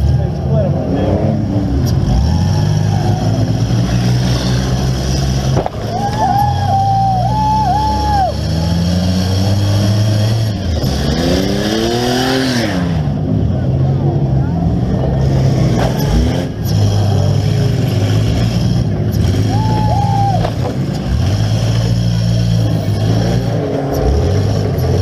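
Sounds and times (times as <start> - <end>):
van engine revving: 0.0 - 25.0.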